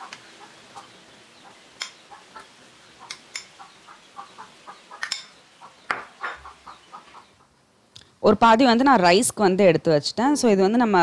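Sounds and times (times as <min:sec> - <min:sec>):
faint chirp-like calls: 0:00.0 - 0:07.6.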